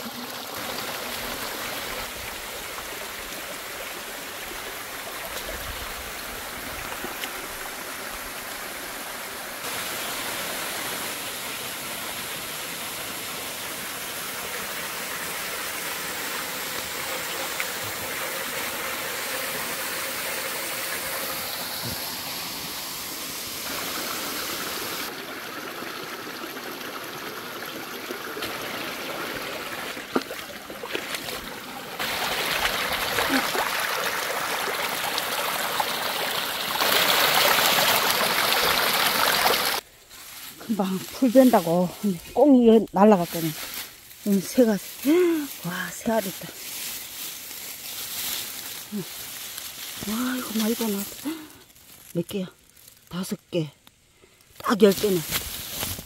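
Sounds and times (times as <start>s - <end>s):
stream water rushing over rocks: 0.0s - 39.9s.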